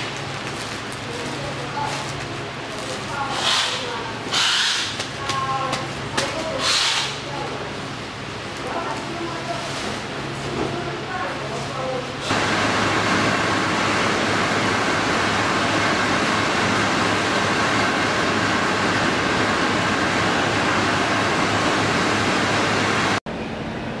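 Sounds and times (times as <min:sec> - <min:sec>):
low machinery hum: 0:00.0 - 0:24.0
machinery hiss: 0:03.2 - 0:05.0.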